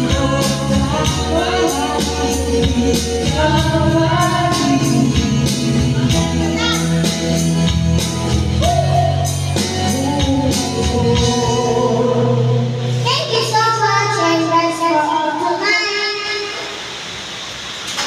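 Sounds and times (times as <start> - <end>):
woman singing into microphone: 0.0 - 6.9, 8.6 - 13.5
amplified music with beat: 0.0 - 13.0.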